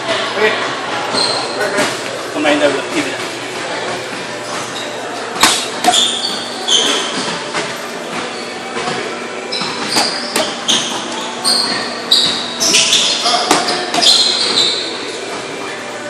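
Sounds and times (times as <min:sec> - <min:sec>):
short high squeaks: 0:01.1 - 0:01.7, 0:05.8 - 0:07.2, 0:09.5 - 0:15.0
boxing gloves smacking mitts: 0:05.4 - 0:06.0.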